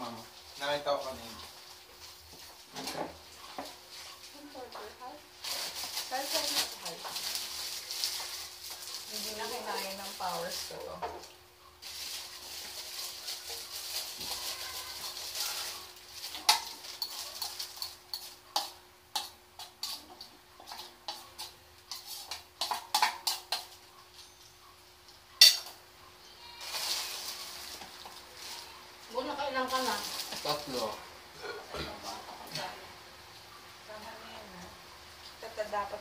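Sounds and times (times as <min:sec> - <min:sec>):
plastic bag crinkling: 0:05.4 - 0:10.9, 0:11.8 - 0:18.4, 0:26.6 - 0:31.0
plates and cutlery clinking: 0:16.3 - 0:24.5, 0:25.4 - 0:25.8.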